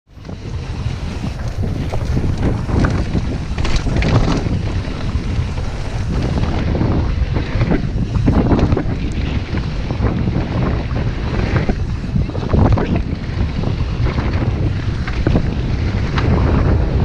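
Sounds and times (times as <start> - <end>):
tyres over dirt and stones: 0.1 - 10.0
mountain bike rattling on trail: 0.1 - 17.0
wind buffeting microphone: 0.1 - 17.0.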